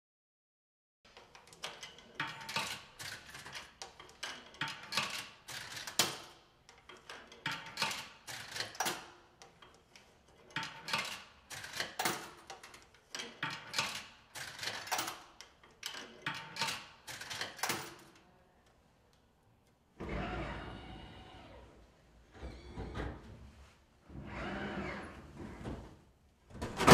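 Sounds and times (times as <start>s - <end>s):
coins clinking into vending machine: 10.5s - 18.2s.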